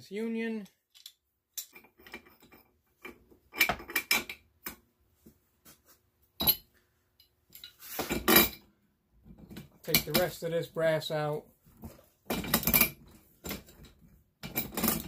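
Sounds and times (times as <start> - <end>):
metal clinks and clanks: 6.4 - 8.7, 12.3 - 15.0.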